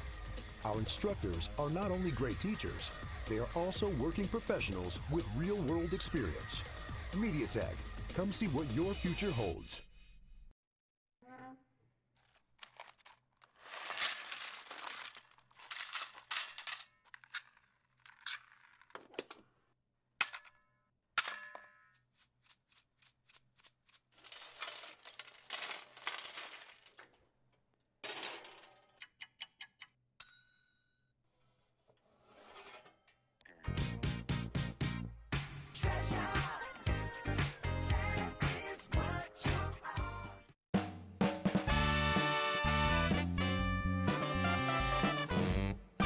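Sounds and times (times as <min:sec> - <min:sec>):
items rustling and clattering: 0:12.1 - 0:19.6, 0:24.1 - 0:29.0
bright metallic ding: 0:30.2 - 0:30.9.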